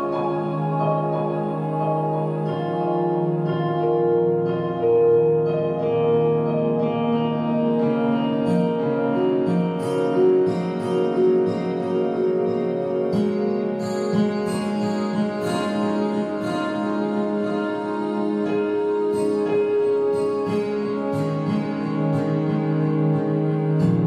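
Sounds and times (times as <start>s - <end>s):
instrumental music with held notes: 0.0s - 24.0s.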